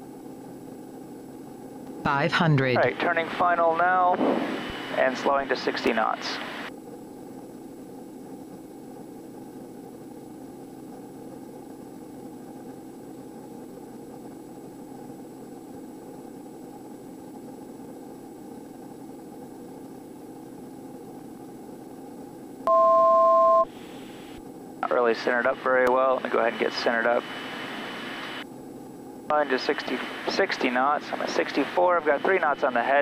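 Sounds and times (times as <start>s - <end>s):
turboprop engine drone: 0.0s - 33.0s
two-tone electronic beep: 22.7s - 23.7s.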